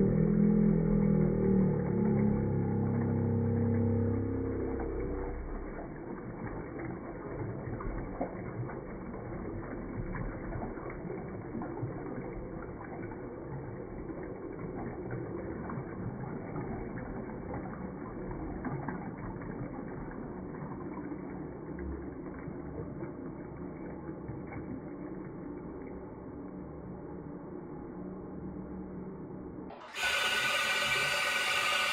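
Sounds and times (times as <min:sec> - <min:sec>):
toilet refilling: 0:02.0 - 0:24.7, 0:29.8 - 0:31.9.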